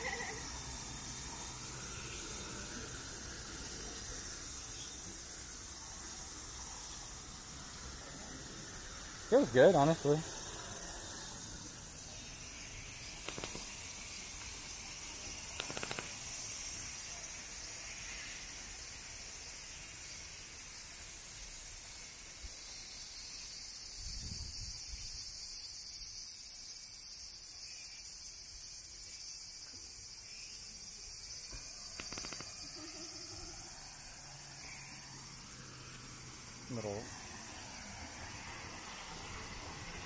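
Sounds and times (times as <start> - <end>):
cicadas buzzing: 0.0 - 40.0.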